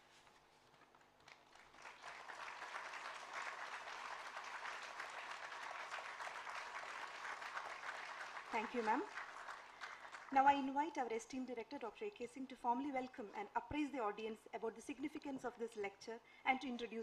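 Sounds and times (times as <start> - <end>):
audience applauding: 1.2 - 10.4.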